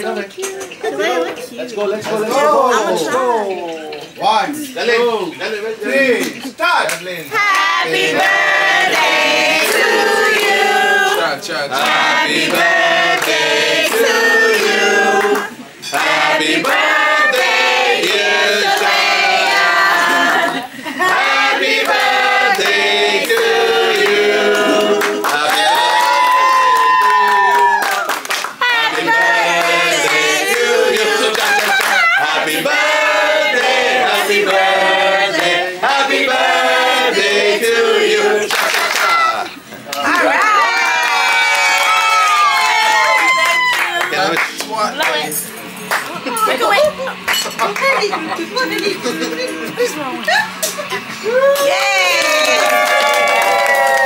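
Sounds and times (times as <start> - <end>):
group of voices singing together: 7.3 - 25.9, 28.4 - 43.3.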